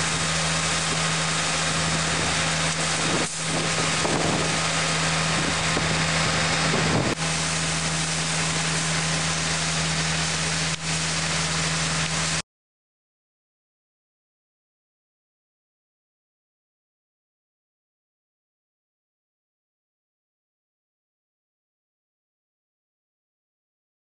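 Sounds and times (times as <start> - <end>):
wind noise on microphone: 0.0 - 7.4
truck engine humming: 0.0 - 12.4.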